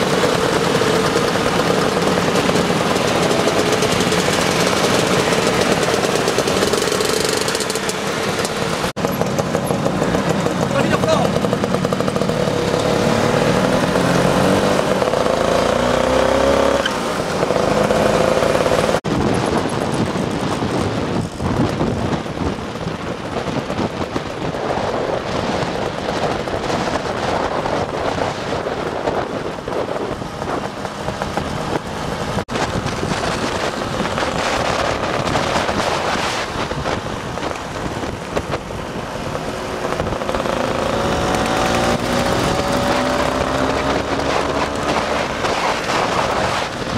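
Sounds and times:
heavy wind noise: 0.0 - 46.9
road noise: 0.0 - 46.9
scooter engines running: 0.0 - 46.9.

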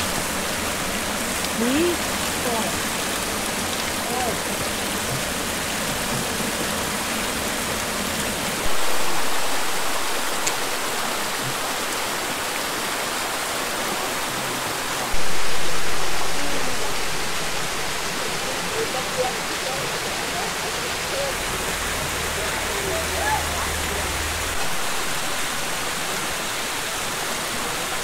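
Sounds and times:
mountain stream rushing: 0.0 - 28.0.

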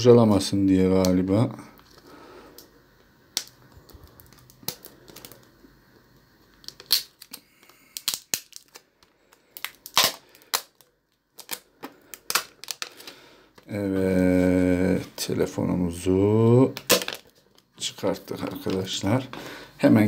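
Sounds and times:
cellophane wrap crackling: 3.3 - 13.7.

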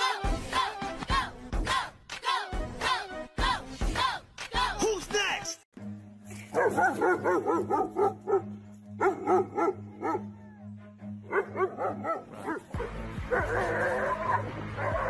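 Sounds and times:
dog barking excitedly: 6.6 - 10.3, 11.3 - 15.0.

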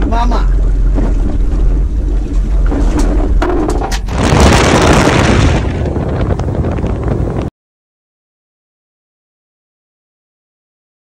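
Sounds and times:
wind buffeting microphone: 0.0 - 7.5.

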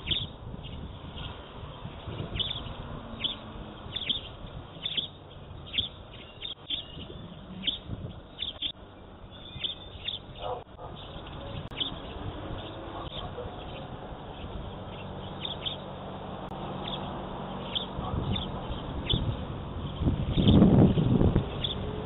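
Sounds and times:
songbirds chirping: 0.0 - 22.0.

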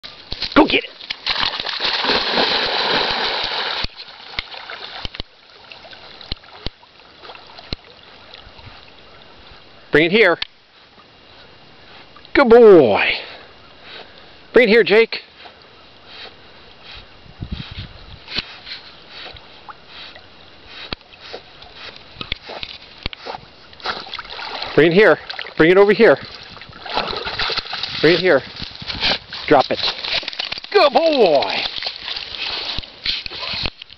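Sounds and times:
dog swimming in water: 0.1 - 9.9, 18.4 - 33.9
dog splashing into water: 0.4 - 5.2, 23.8 - 25.6, 26.3 - 28.1
dog breathing hard through nose: 15.4 - 24.1.

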